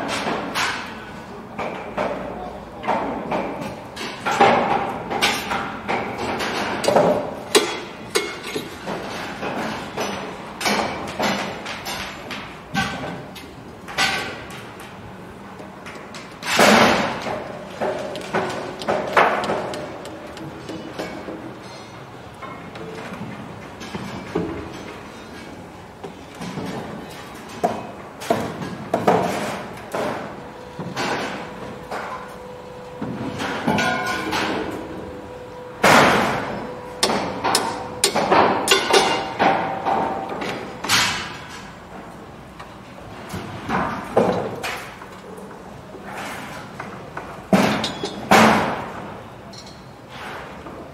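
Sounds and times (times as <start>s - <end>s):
knocks and clanks: 15.8s - 32.4s, 35.8s - 41.8s
sharp metal clanks: 37.0s - 39.5s.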